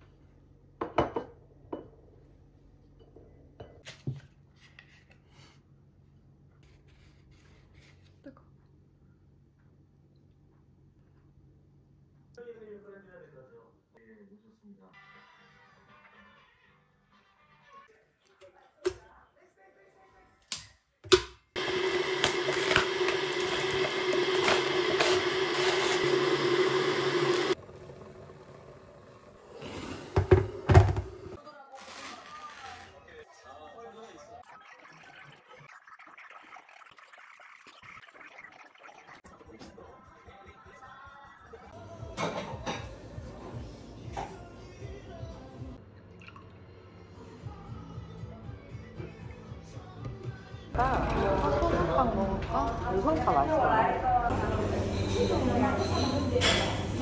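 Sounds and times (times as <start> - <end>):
kettle heating water hum: 20.5 - 31.4
plate and tub knocking on table: 30.2 - 31.1
packaging crinkling and ripping: 31.6 - 33.0.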